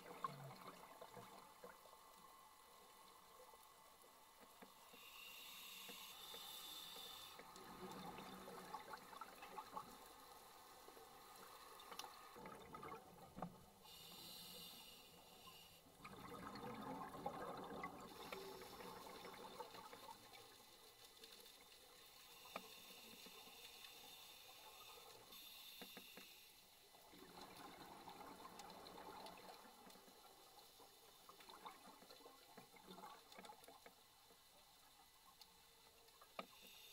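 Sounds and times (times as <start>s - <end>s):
crackling bubbles: 0.0s - 36.9s
hissing regulator inhalations: 4.9s - 7.5s, 13.9s - 15.9s.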